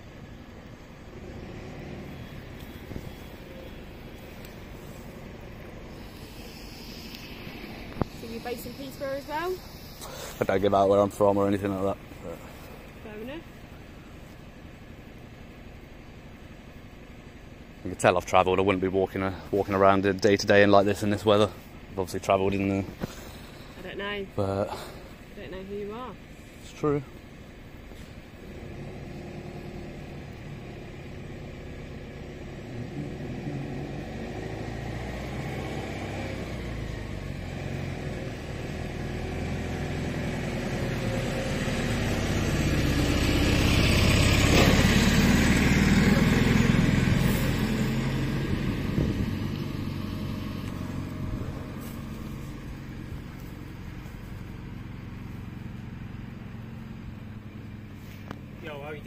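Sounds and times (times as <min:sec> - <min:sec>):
vehicle engine passing by: 0:00.9 - 0:13.9, 0:28.0 - 0:59.0.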